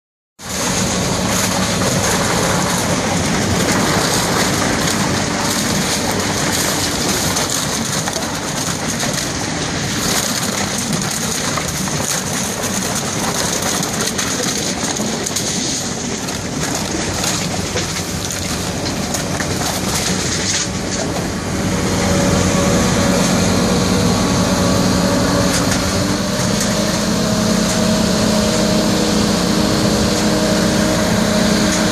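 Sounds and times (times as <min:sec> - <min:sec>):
steady multi-tone hum: 0:00.4 - 0:31.9
vacuum loader rushing: 0:00.4 - 0:31.9
plastic bottles clattering: 0:00.5 - 0:21.3.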